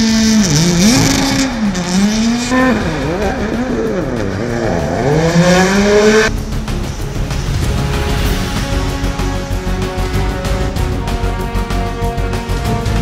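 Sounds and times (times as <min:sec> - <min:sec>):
rally car engine revving: 0:00.0 - 0:13.0.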